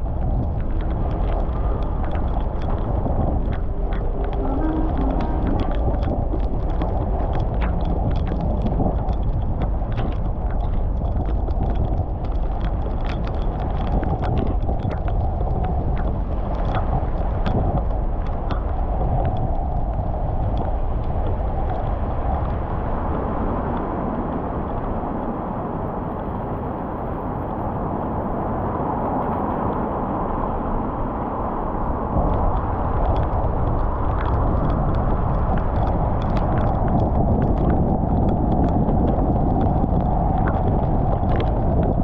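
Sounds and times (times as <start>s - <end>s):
raindrops ticking on car: 0.0s - 23.1s, 32.1s - 42.0s
road and tyre noise: 0.0s - 42.0s.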